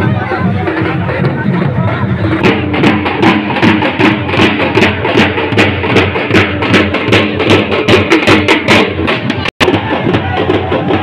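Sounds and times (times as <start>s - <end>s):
drums beaten fast rhythm: 0.0s - 11.0s.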